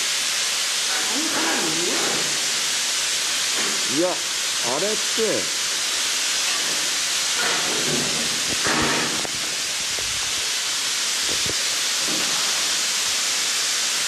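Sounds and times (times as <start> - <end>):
loud steady hiss: 0.0 - 14.0.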